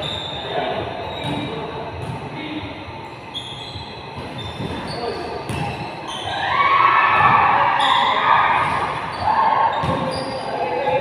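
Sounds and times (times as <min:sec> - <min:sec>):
sneakers squeaking: 0:00.0 - 0:11.0
basketball bouncing on gym court: 0:04.2 - 0:05.9, 0:09.7 - 0:11.0.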